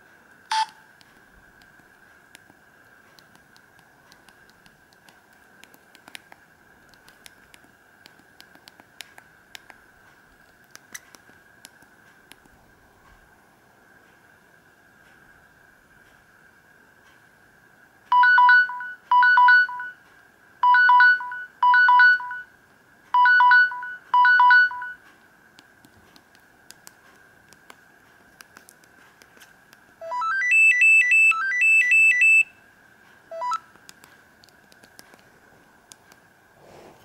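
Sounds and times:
two-note electronic alarm beeps: 30.0 - 32.5.

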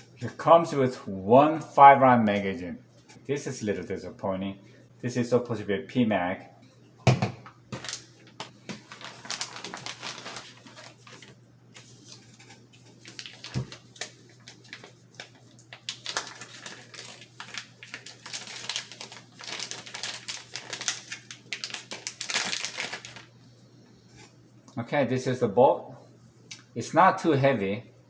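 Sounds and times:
plastic bags crinkling: 7.7 - 23.3.

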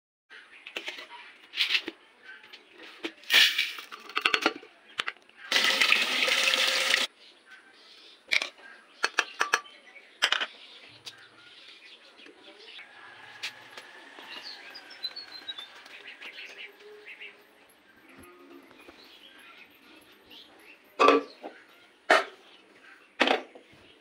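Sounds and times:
water pouring: 5.5 - 7.1.

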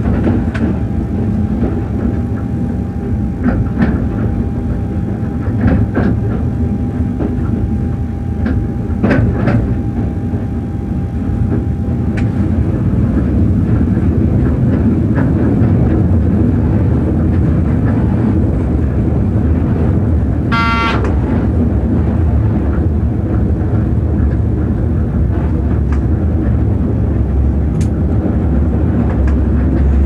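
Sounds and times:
faint steady whine: 0.0 - 15.6
train running rumble: 0.0 - 30.0
brief tooting tone: 20.5 - 21.1.

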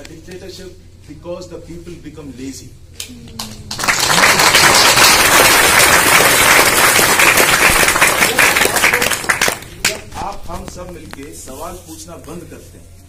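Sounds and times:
audience applauding: 3.4 - 10.1.

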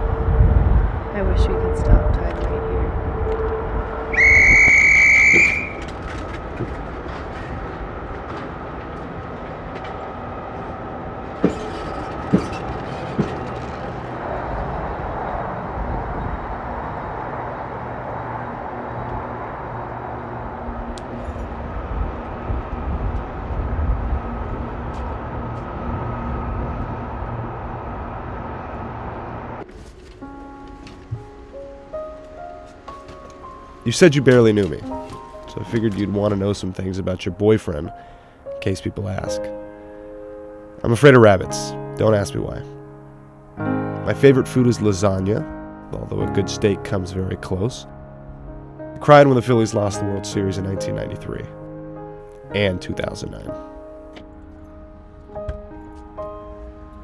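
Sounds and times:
train engines low rumble: 0.0 - 39.6
loud high train whistle: 2.6 - 5.9.

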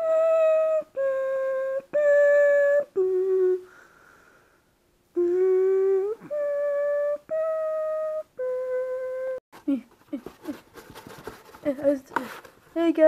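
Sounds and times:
person humming slow tune: 0.0 - 3.8, 5.1 - 10.6.

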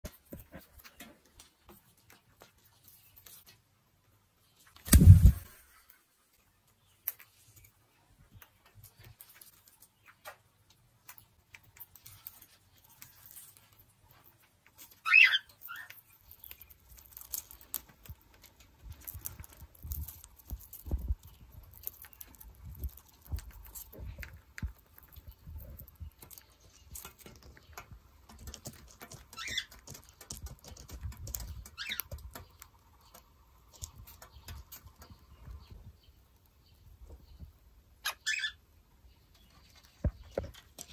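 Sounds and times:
bird chewing leaves: 11.0 - 35.2
bird chirp: 14.1 - 17.9, 20.4 - 40.9.

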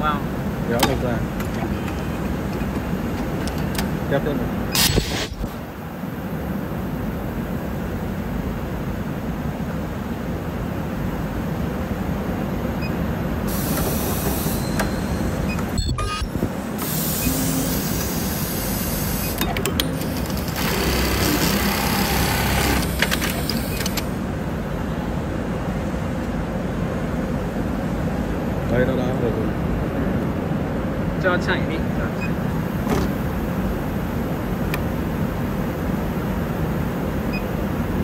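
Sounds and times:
compressed air hissing: 4.8 - 5.4, 13.5 - 14.8, 16.8 - 19.4
sewing machine hum: 16.8 - 24.2.

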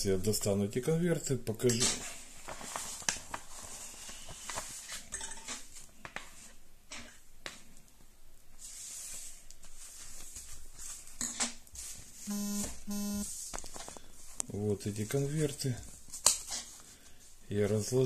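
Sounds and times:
paper envelopes rustling: 2.0 - 5.1, 8.6 - 11.2, 13.4 - 14.4.

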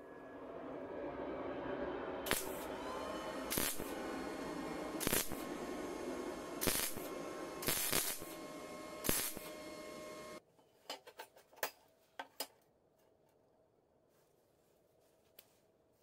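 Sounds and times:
welder arc crackling: 2.3 - 10.4
sharp welding pops: 3.5 - 3.9, 5.0 - 5.4, 6.6 - 8.4, 9.0 - 9.5.

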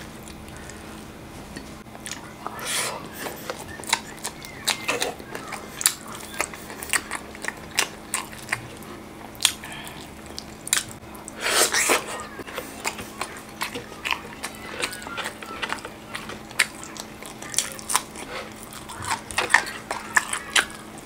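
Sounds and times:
faint steady hum: 0.0 - 21.0
wet chewing and lip smacks: 0.1 - 21.0
wet bite: 3.4 - 12.0.

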